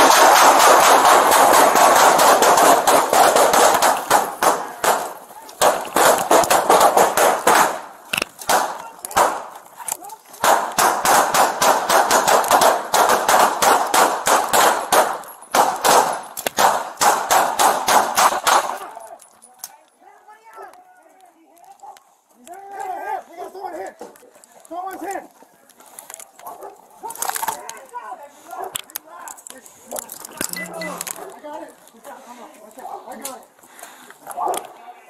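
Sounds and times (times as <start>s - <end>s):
rapid handgun fire: 0.0s - 9.5s, 10.4s - 18.8s.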